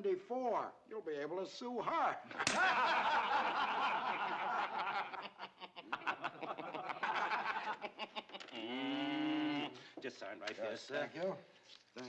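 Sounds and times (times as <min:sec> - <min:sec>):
person chuckling and laughing: 0:02.4 - 0:09.8.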